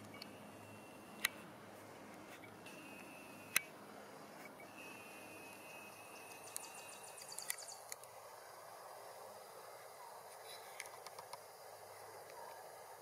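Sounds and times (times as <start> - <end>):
zoom motor whine: 0.0 - 8.0
small mechanical ticks: 5.5 - 8.0
camera lens click: 6.2 - 8.0.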